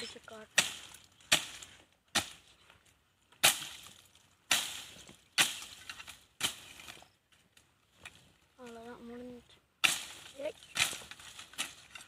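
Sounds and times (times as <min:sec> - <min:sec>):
machete chopping palm base: 0:03.4 - 0:03.9, 0:04.5 - 0:05.8.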